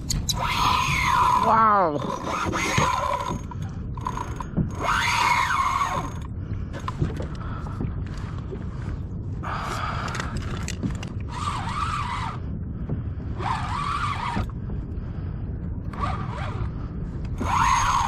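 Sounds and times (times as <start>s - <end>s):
wind and water rumble: 0.0s - 18.0s
fishing reel whirring: 0.3s - 6.3s, 11.2s - 12.4s, 13.4s - 14.5s, 15.9s - 16.7s, 17.4s - 18.0s.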